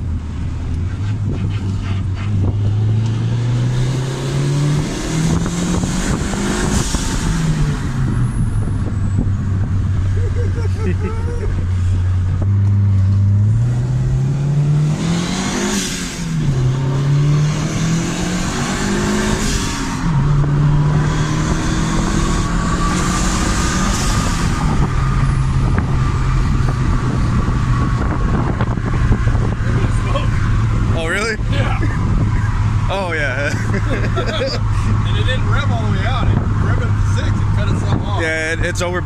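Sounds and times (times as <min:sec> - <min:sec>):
car engine accelerating: 0:00.0 - 0:39.0.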